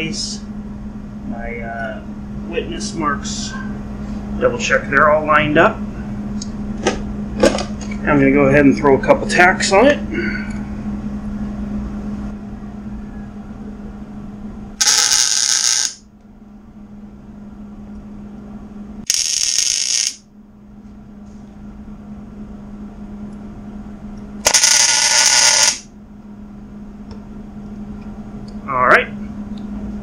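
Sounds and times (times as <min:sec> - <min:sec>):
steady low hum: 0:00.0 - 0:30.0
welder arc crackling: 0:14.8 - 0:16.0, 0:19.0 - 0:20.2, 0:24.4 - 0:25.9.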